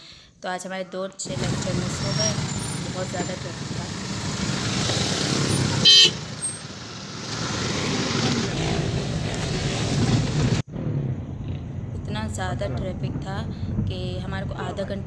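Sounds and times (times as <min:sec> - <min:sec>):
road traffic noise: 0:01.2 - 0:11.9
car horn blast: 0:05.6 - 0:06.3.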